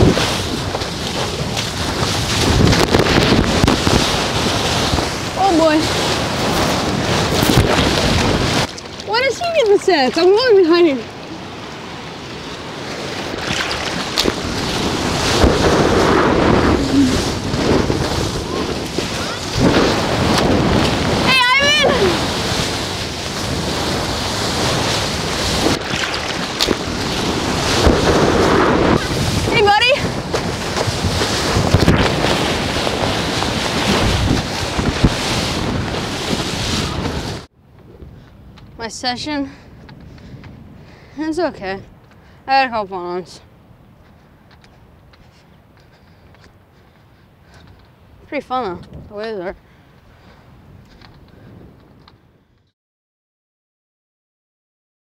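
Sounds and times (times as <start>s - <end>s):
ocean wave breaking and rushing: 0.0s - 42.8s
wind buffeting microphone: 0.0s - 52.5s.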